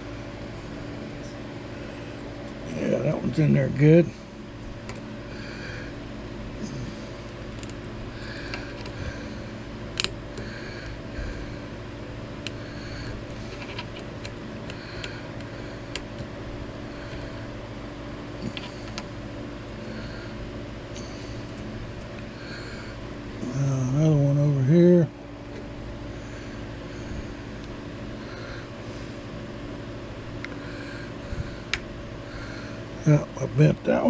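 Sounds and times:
machine hum: 0.0 - 34.0
small clicks and handling noises: 7.5 - 7.9, 8.5 - 9.0, 10.0 - 10.4, 13.5 - 16.3, 18.4 - 19.2.

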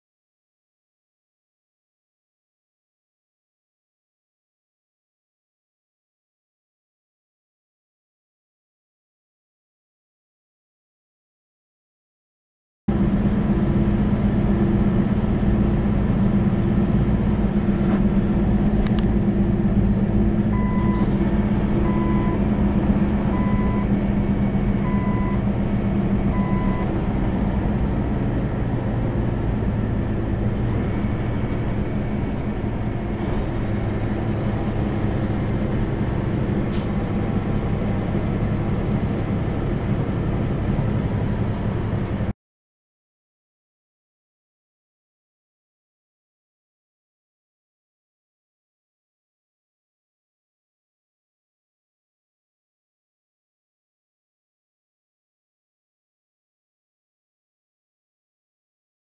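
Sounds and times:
diesel engine and road drone: 12.9 - 42.4
short electronic beeps: 20.5 - 21.1, 21.8 - 22.4, 23.3 - 23.9, 24.8 - 25.4, 26.3 - 26.9.

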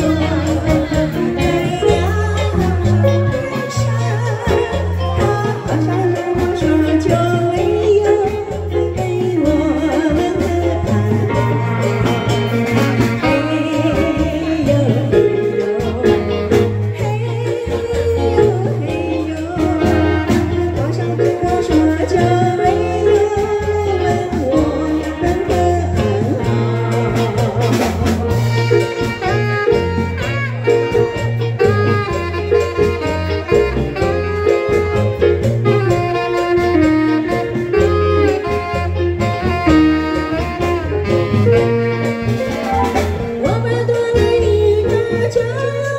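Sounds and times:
woman singing through microphone: 0.0 - 30.3, 43.2 - 45.9
live band with bass line: 0.0 - 45.9
saxophone melody: 0.0 - 45.9.

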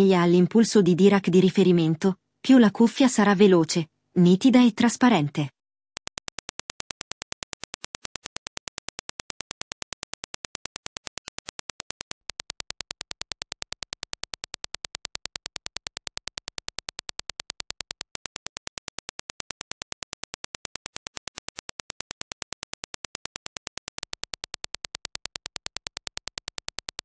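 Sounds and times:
rapid sharp clicks: 6.0 - 27.0.

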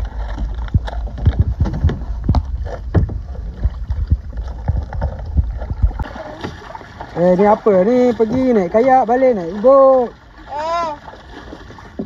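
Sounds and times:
wind rumble on microphone: 0.0 - 6.2
kayak and paddle knocking: 0.0 - 12.0.

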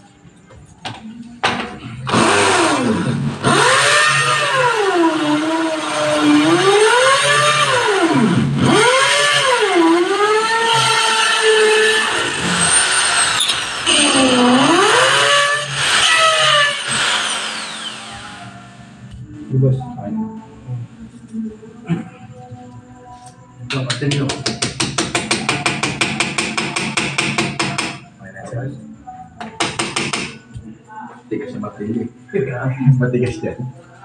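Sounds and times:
electric drill boring into concrete: 2.1 - 18.6.

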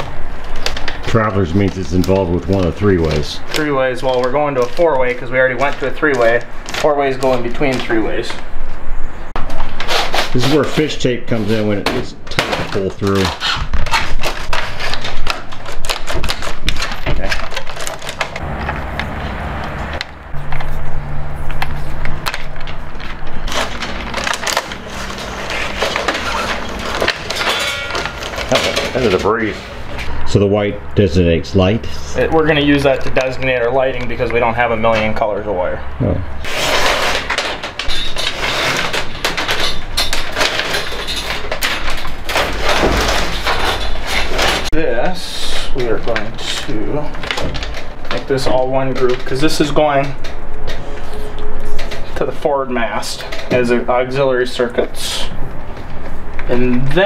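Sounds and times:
wires scraping and rustling: 0.0 - 30.4, 36.4 - 57.0
fish tape clicking in metal conduit: 36.4 - 44.7.

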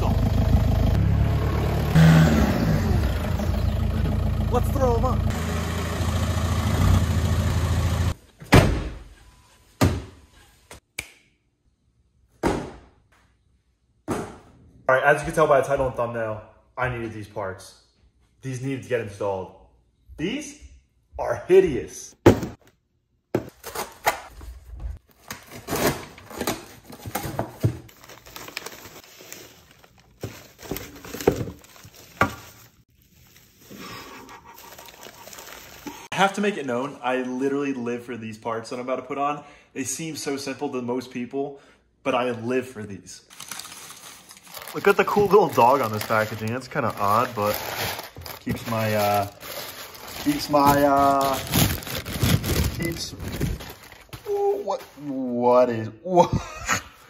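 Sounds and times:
diesel engine idling: 0.0 - 8.2
bubble wrap crinkling: 27.9 - 36.1, 43.3 - 54.2.

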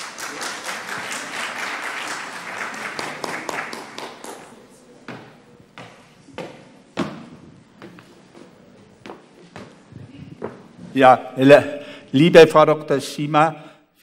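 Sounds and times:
audience applauding: 0.0 - 4.6.

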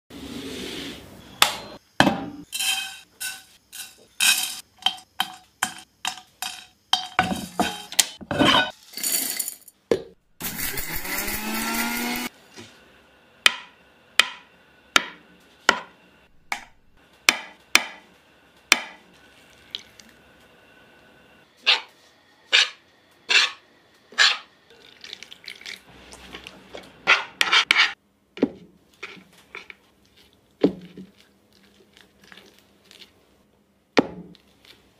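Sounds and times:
electric grinder whirring: 10.4 - 12.3.

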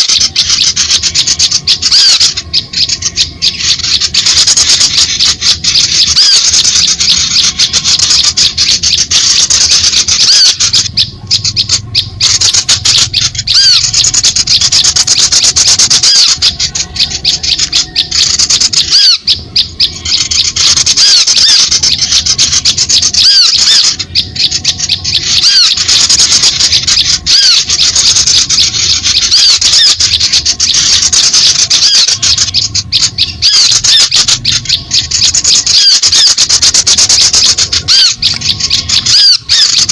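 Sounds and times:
songbirds chirping and clicking: 0.0 - 39.9.

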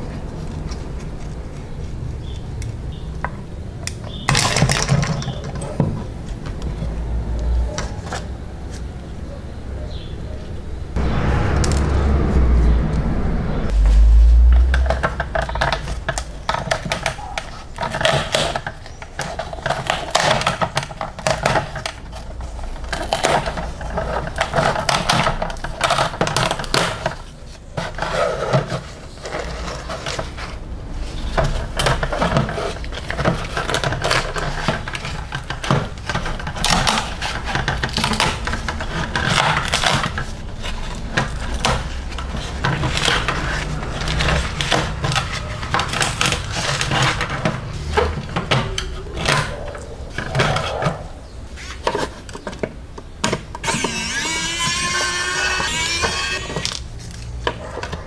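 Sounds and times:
small clicks and scrapes: 15.1 - 52.7.

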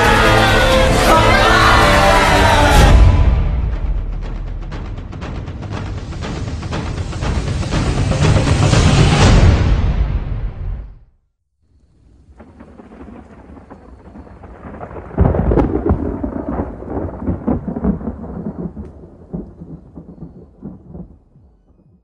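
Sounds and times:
rolling rumble with crackles: 12.0 - 21.8.

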